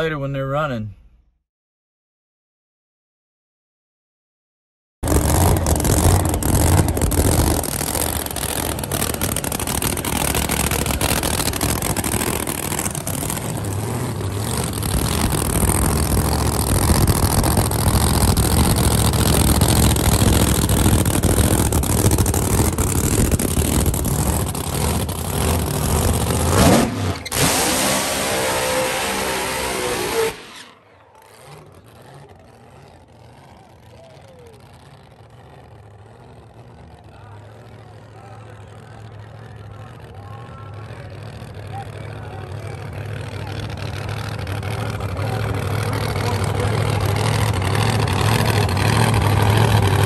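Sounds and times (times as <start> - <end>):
drag car engine idling loudly: 5.0 - 26.6, 27.2 - 50.0.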